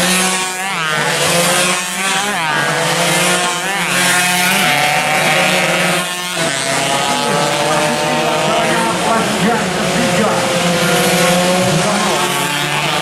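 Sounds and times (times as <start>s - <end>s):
distant motorcycles droning: 0.0s - 13.0s
motorcycles passing at full throttle: 0.0s - 13.0s.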